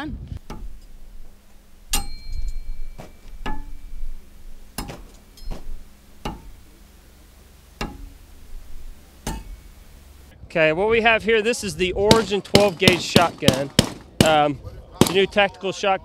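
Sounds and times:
thin metallic ring: 0:00.5 - 0:07.0, 0:07.8 - 0:10.0
knives striking wooden target: 0:04.8 - 0:06.5.

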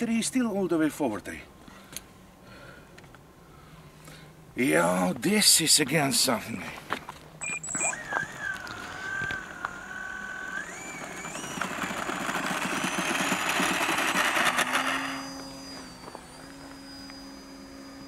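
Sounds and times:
electric motor whine: 0:07.4 - 0:18.0.

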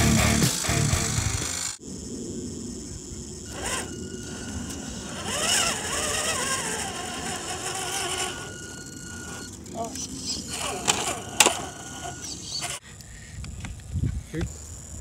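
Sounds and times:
electric motor whining: 0:00.0 - 0:01.8, 0:03.4 - 0:12.8
steady low rumbling noise: 0:00.0 - 0:12.4.

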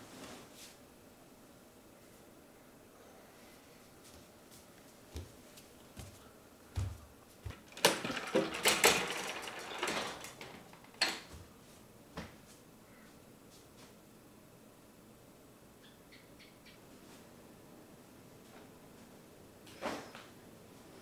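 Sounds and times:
clicking and rattling: 0:07.5 - 0:11.3
objects knocking: 0:07.5 - 0:11.4.

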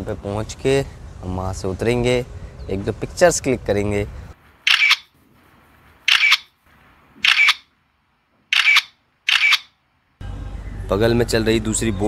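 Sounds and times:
camera shutter clicking: 0:04.7 - 0:05.1, 0:06.1 - 0:06.5, 0:07.2 - 0:07.7, 0:08.5 - 0:09.8.

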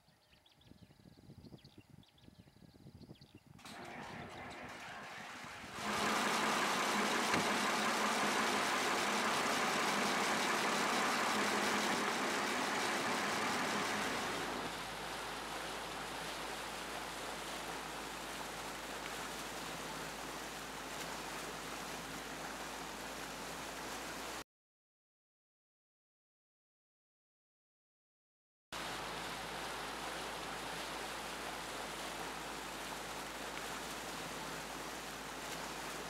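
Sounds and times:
boat engine drone: 0:03.6 - 0:24.4, 0:28.8 - 0:36.0
rushing water noise: 0:03.6 - 0:24.4, 0:28.8 - 0:36.0.

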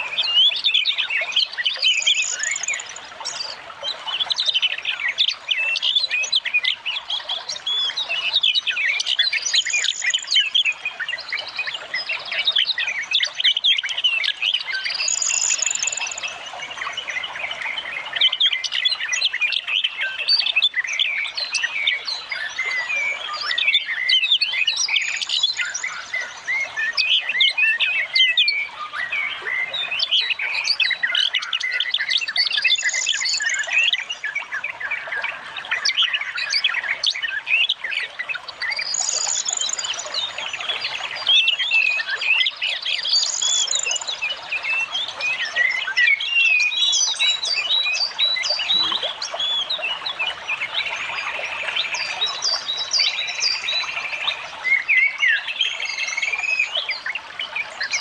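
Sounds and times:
songbirds chirping and trilling: 0:00.0 - 0:58.0.

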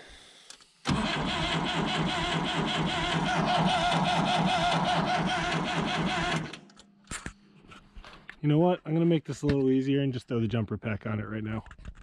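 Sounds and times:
starter motor cranking diesel engine: 0:00.9 - 0:06.7.

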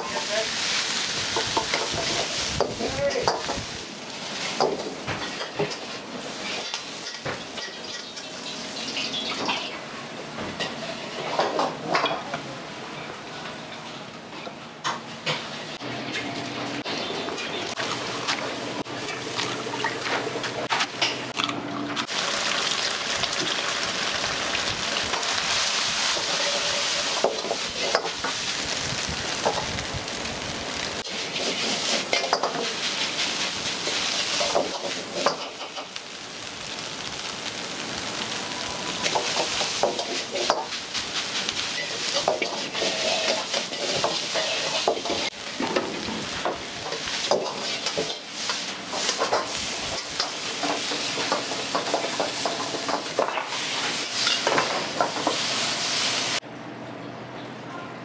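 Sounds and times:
food sizzling in a wok: 0:00.0 - 0:11.7, 0:22.0 - 0:56.4
metal ladle scraping a pan: 0:41.8 - 0:45.3.

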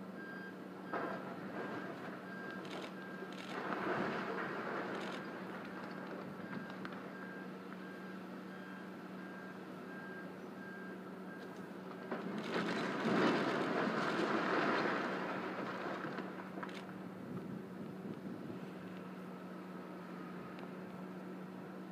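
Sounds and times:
steady engine hum: 0:00.0 - 0:21.9
rush of machinery noise: 0:00.9 - 0:07.2
reversing alarm beeping: 0:05.0 - 0:11.6.

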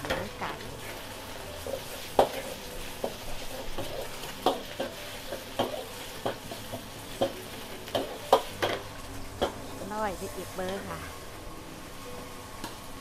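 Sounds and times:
frying hiss: 0:00.0 - 0:13.0
ladle clanking against wok: 0:01.6 - 0:09.8.

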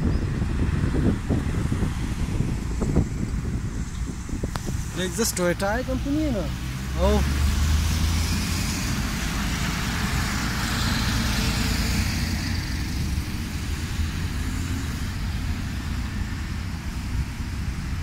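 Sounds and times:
cars passing: 0:00.0 - 0:18.0
low traffic rumble: 0:00.0 - 0:18.0
truck driving past: 0:04.8 - 0:18.0.

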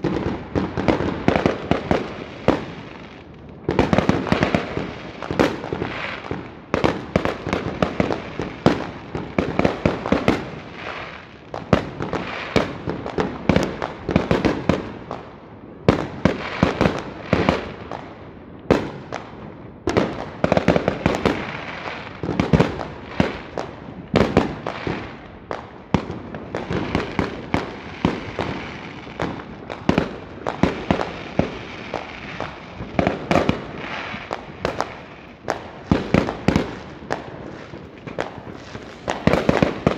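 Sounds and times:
fireworks bangs: 0:00.0 - 0:39.9.

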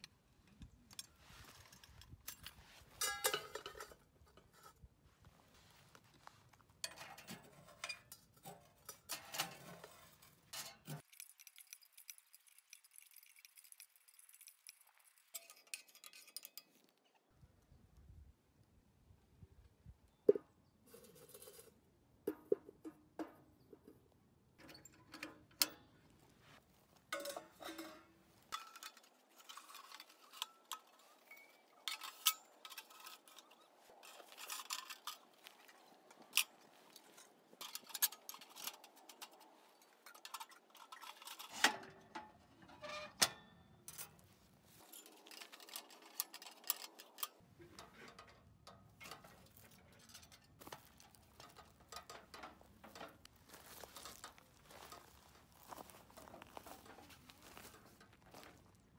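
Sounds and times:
light metal clicks and clinks: 0:00.0 - 0:04.8, 0:06.8 - 0:17.3, 0:24.6 - 0:26.2, 0:27.0 - 0:42.5, 0:43.2 - 0:58.6.

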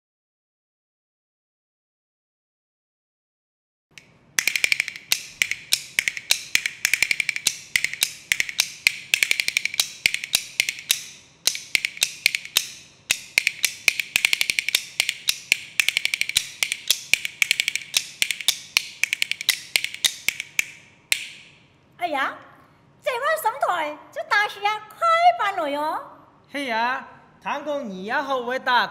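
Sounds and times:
bamboo clappers clacking: 0:03.9 - 0:21.7.

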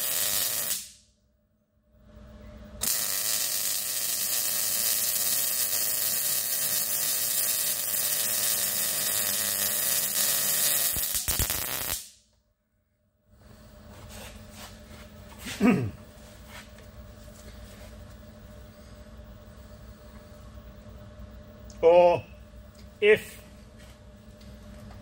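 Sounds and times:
welding arc crackling: 0:00.0 - 0:01.0, 0:02.8 - 0:12.2.

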